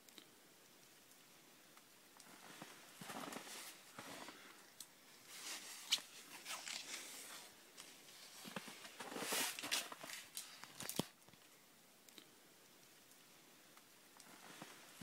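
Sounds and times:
handling rustling: 2.2 - 4.6, 5.2 - 11.2.

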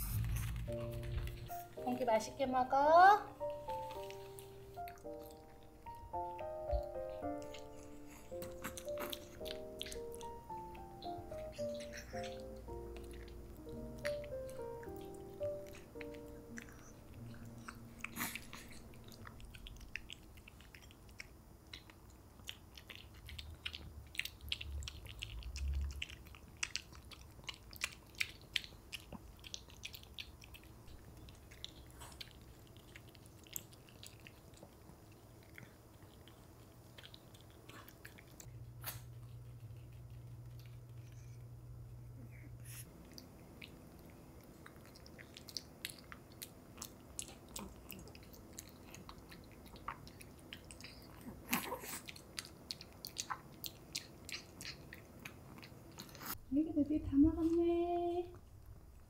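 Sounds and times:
steady low hum: 0.0 - 29.5, 30.5 - 59.0
dog chewing and smacking: 3.7 - 41.4, 42.7 - 56.4.

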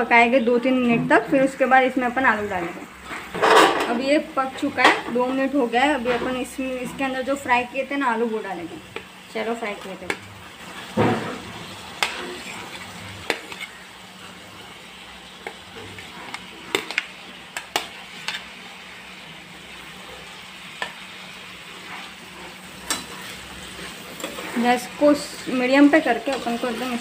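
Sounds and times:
gravy sizzling in a frying pan: 1.4 - 27.0
spoon scraping plate and pan: 3.0 - 4.0, 10.1 - 13.8, 15.4 - 18.6, 21.8 - 24.9.

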